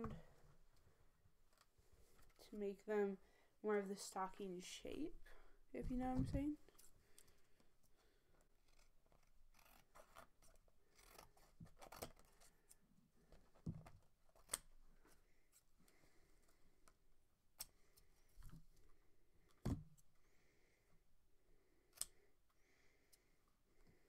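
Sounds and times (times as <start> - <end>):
scissors snipping paper: 8.6 - 12.4.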